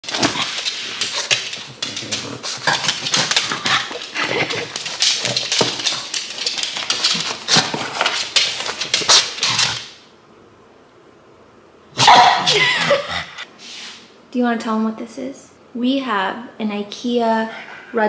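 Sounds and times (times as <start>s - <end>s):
dog snuffling: 0.0s - 9.8s.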